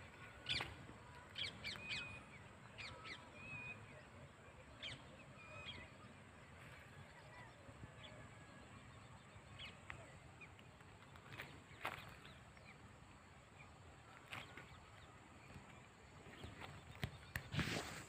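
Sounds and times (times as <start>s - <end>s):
soft rustling: 15.6s - 18.0s.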